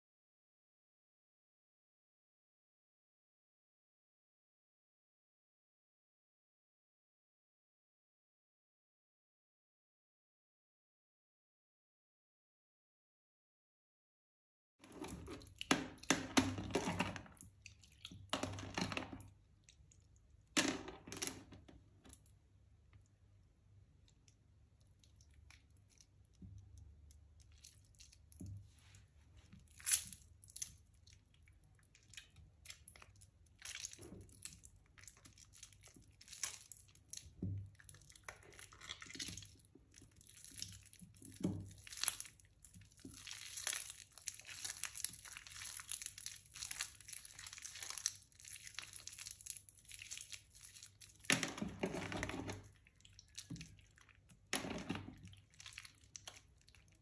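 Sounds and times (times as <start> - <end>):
wet soap squished by hand: 15.0 - 57.0.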